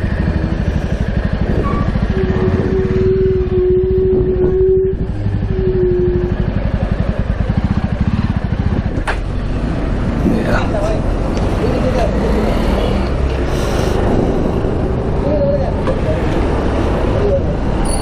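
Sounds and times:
steady tone: 0.0s - 7.4s
motorcycle engine idling: 0.0s - 11.1s.

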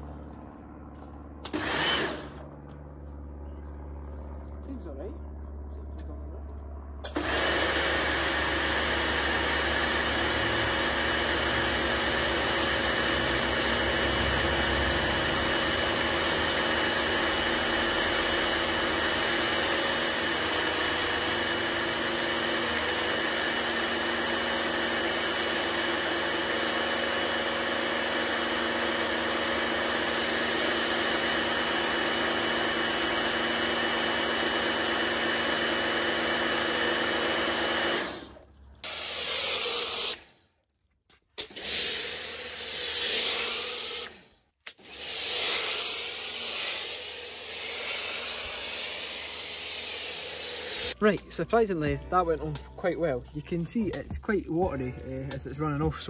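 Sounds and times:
pressure washer motor humming: 1.4s - 2.4s, 7.0s - 40.3s, 41.4s - 56.0s.

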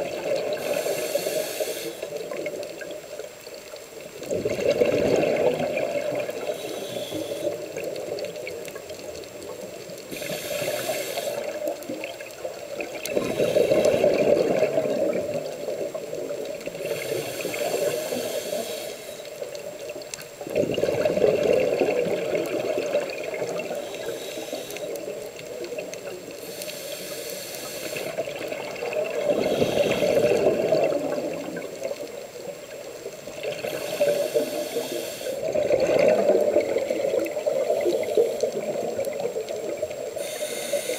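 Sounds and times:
exhaled bubbles underwater: 0.0s - 3.4s, 4.0s - 40.9s
regulator inhale hiss: 0.4s - 2.7s, 6.0s - 8.2s, 10.0s - 12.2s, 13.0s - 15.2s, 16.5s - 19.8s, 22.5s - 31.6s, 33.4s - 35.7s, 37.4s - 40.9s.

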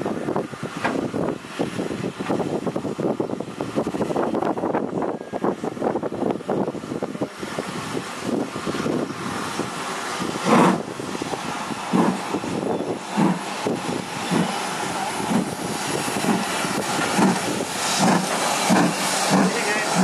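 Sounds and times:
steady steam hiss: 0.0s - 20.0s
steam locomotive chuffing: 4.7s - 20.0s.

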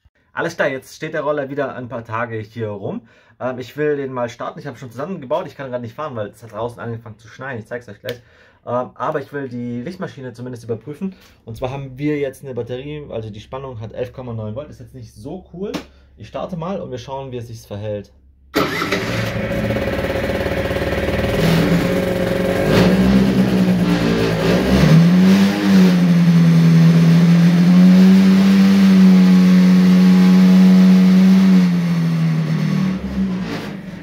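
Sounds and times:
scooter engine starting and idling: 18.5s - 27.8s.

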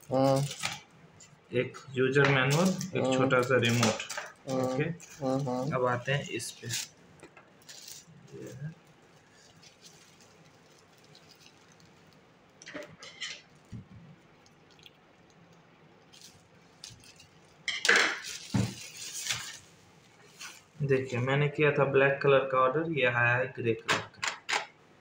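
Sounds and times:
plastic bag crinkling and tearing: 0.0s - 0.8s, 2.5s - 12.6s, 13.5s - 20.8s.

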